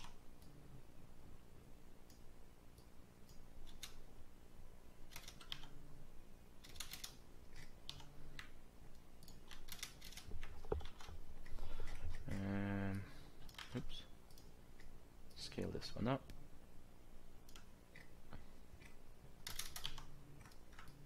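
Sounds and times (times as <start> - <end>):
faint steady hum: 0.0 - 21.0
keyboard keystrokes clicking: 5.1 - 5.7, 6.6 - 8.5, 9.2 - 11.1, 18.8 - 21.0.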